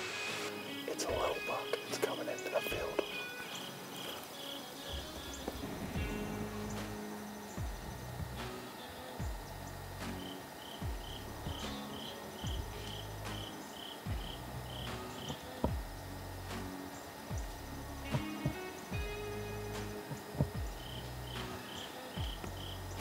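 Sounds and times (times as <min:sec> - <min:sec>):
quiet background music: 0:00.0 - 0:23.0
cricket chirping: 0:00.7 - 0:16.1, 0:16.7 - 0:23.0
low thumps: 0:04.9 - 0:08.5, 0:17.3 - 0:21.4.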